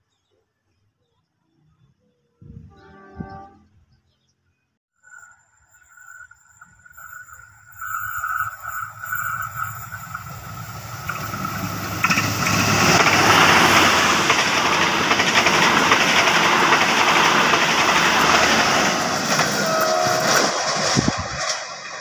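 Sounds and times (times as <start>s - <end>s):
diesel locomotive passing: 5.0s - 22.0s
train wheels on rails: 6.2s - 22.0s.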